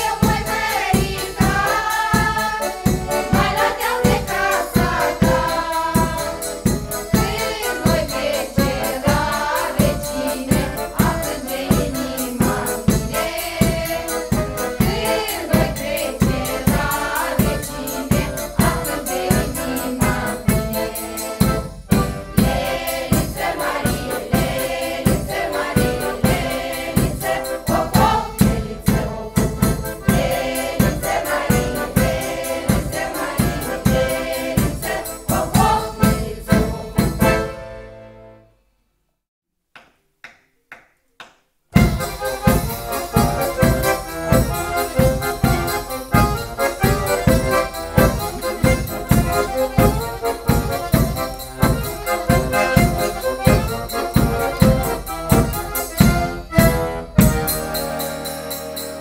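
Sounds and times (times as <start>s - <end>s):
women's choir singing: 0.0s - 37.5s
frame drum beats: 0.0s - 37.6s, 41.7s - 59.0s
piano accordion: 0.0s - 38.6s, 41.8s - 59.0s.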